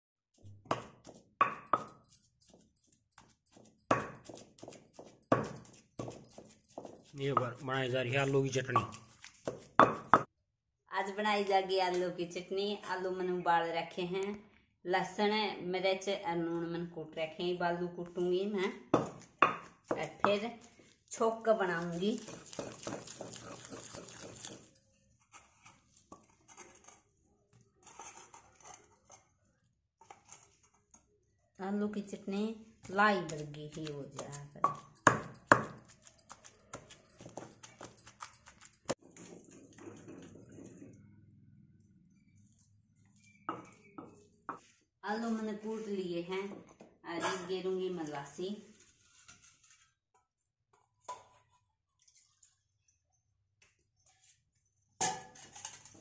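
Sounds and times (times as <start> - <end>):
pestle thudding in stone mortar: 0.6 - 7.6, 8.8 - 10.3, 18.9 - 20.4, 22.1 - 24.7, 32.8 - 38.0.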